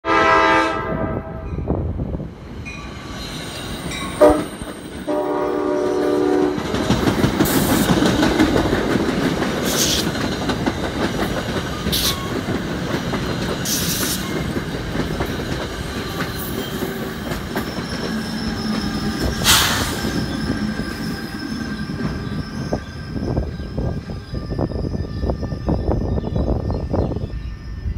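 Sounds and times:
train horn blasts: 0.0s - 1.8s, 4.2s - 6.8s
electric locomotive hum: 0.1s - 27.9s
train wheels clattering on rails: 3.1s - 27.0s.

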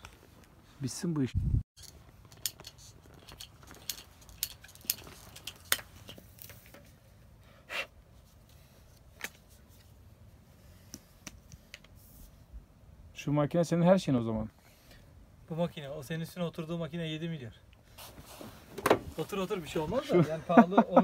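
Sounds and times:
short scrape: 17.9s - 19.2s.

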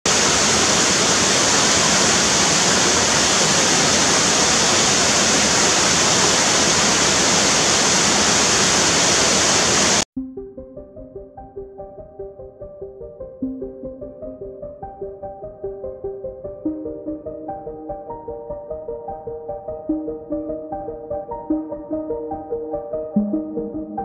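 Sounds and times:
waterfall roaring into a pool: 0.1s - 10.1s.

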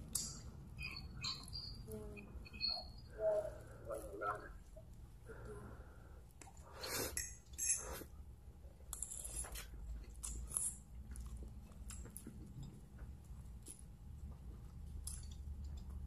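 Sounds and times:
chewing: 8.8s - 16.0s.

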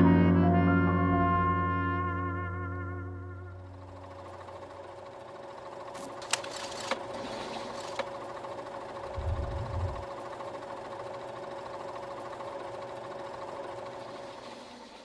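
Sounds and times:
machine hum with rapid clatter: 1.4s - 15.0s.

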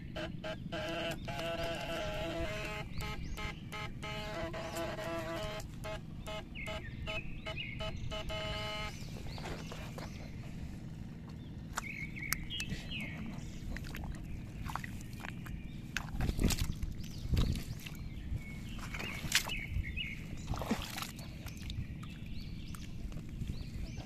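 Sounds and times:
pulsing pitched tone: 0.0s - 9.0s
bird chirps: 0.0s - 10.4s
hand squelching in wet mud: 11.2s - 23.4s.

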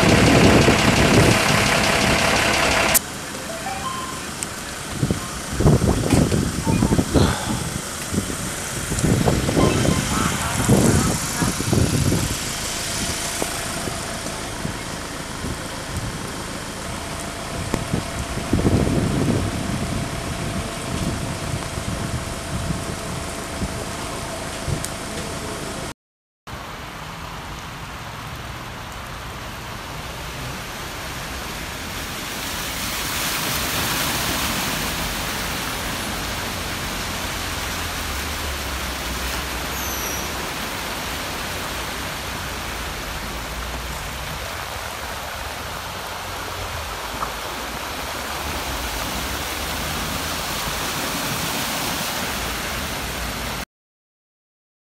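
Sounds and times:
low engine hum: 0.0s - 25.9s
tyres splashing through floodwater: 0.0s - 25.9s, 26.5s - 53.6s.

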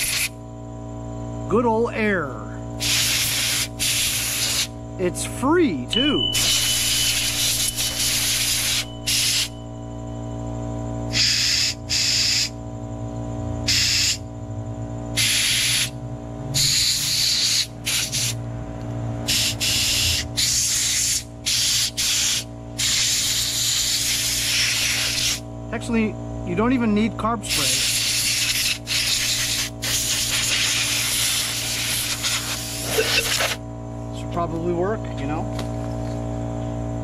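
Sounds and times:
steady hum: 0.0s - 37.0s
air blow gun hissing: 2.8s - 4.7s, 6.4s - 9.5s, 15.2s - 15.9s, 16.6s - 18.4s, 19.3s - 25.4s, 27.5s - 33.6s.

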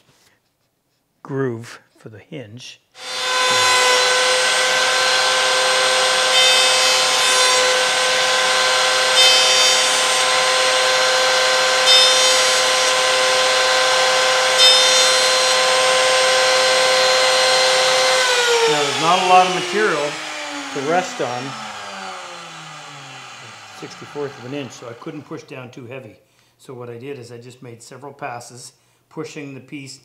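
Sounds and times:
router high-pitched whine: 3.0s - 25.4s
router cutting wood: 3.0s - 25.5s.

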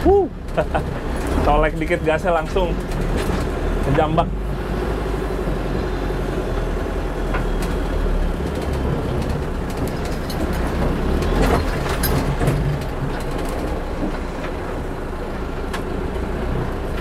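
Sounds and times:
diesel engine under load: 0.0s - 17.0s
knocks and rattles: 0.4s - 4.4s, 6.4s - 15.0s.

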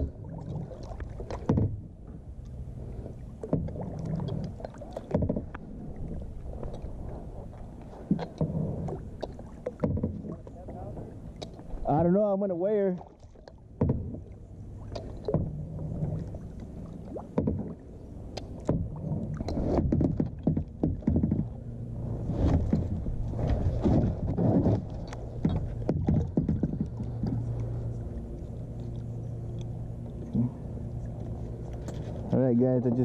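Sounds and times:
low steady hum: 0.0s - 33.0s
gear knocking against plastic kayak: 5.0s - 5.6s, 9.7s - 10.5s, 18.5s - 21.6s, 23.8s - 27.5s.

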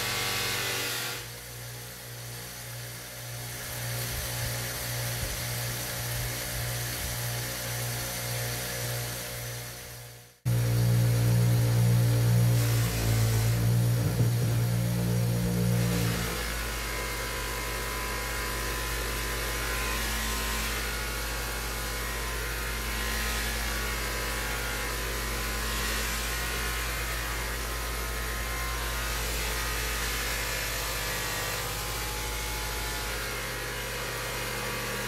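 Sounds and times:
bench buffer motor humming: 10.5s - 19.8s.

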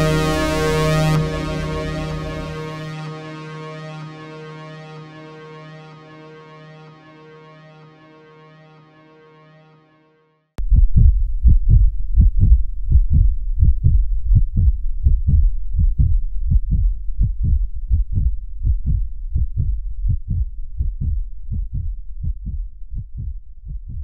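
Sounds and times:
heartbeat thumps: 10.6s - 24.0s.

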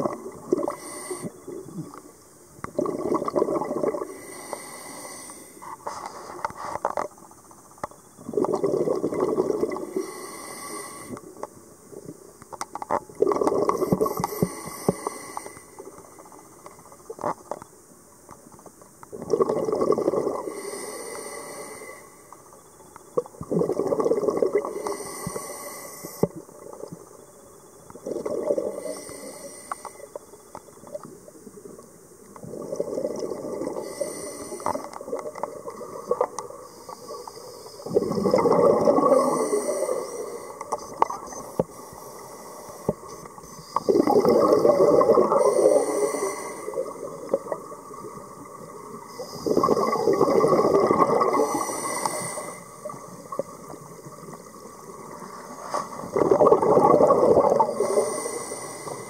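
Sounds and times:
exhaled bubbles underwater: 0.0s - 4.3s, 8.2s - 10.2s, 13.0s - 14.5s, 19.1s - 20.7s, 23.2s - 25.0s, 27.9s - 29.3s, 31.0s - 59.0s.

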